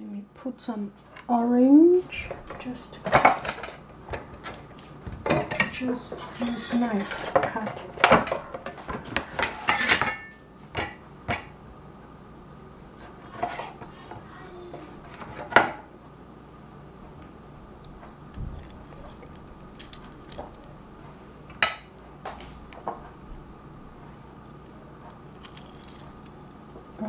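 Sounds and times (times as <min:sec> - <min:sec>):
utensils clinking against dishes: 0:05.3 - 0:11.5, 0:21.6 - 0:22.0.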